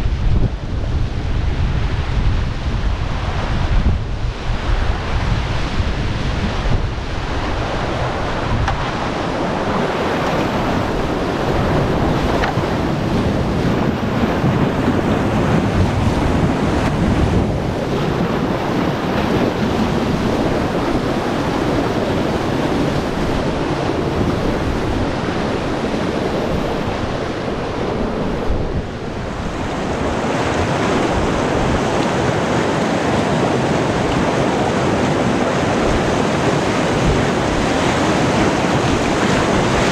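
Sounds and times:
wind buffeting microphone: 0.0s - 39.9s
river whitewater rushing: 0.7s - 39.9s.

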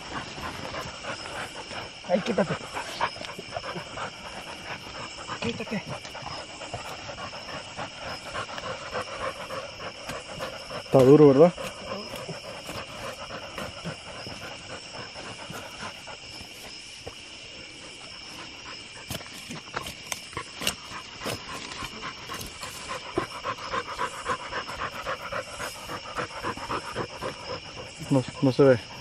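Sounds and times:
dog panting: 0.0s - 29.0s
night insects chirping: 0.0s - 29.0s.

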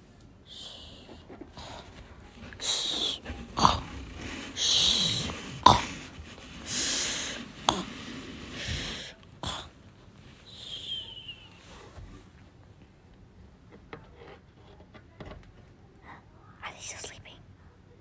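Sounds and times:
person fake snoring: 2.6s - 9.8s.

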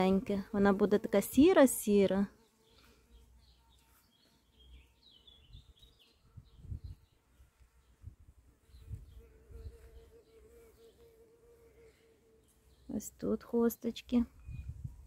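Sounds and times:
flying insect buzzing: 0.0s - 6.0s, 8.6s - 12.9s
small birds chirping: 0.0s - 15.0s.

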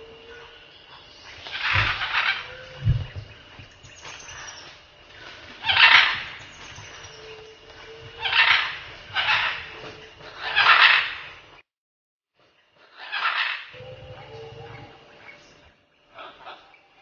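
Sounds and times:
macaws squawking: 1.4s - 3.2s, 5.6s - 7.3s, 7.9s - 11.3s, 12.9s - 15.0s.

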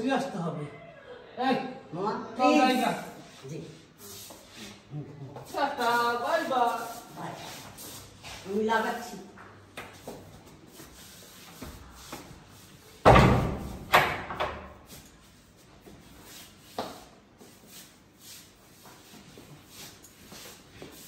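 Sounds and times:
wooden door banging shut: 13.0s - 14.7s.

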